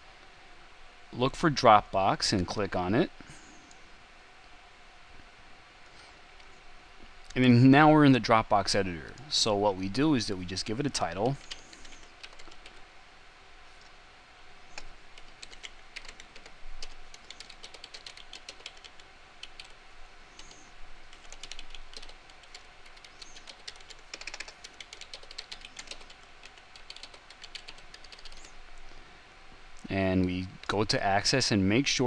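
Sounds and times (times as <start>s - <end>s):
typing on keyboard: 11.1s - 12.8s, 14.8s - 19.8s, 20.4s - 28.5s.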